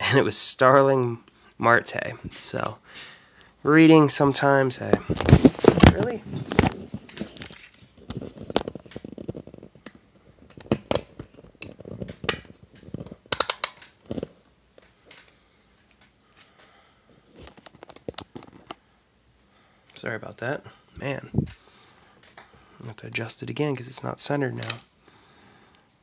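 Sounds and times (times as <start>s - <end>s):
camera handling clicks and rustles: 4.9s - 16.6s, 17.3s - 18.8s, 22.2s - 22.5s, 24.6s - 24.9s.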